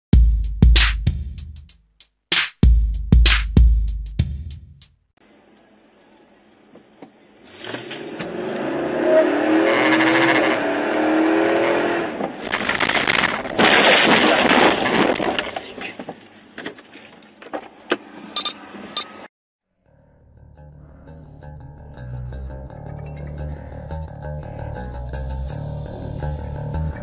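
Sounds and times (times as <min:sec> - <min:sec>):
car driving on road: 0:07.6 - 0:16.2
wavering squeal: 0:09.0 - 0:10.8.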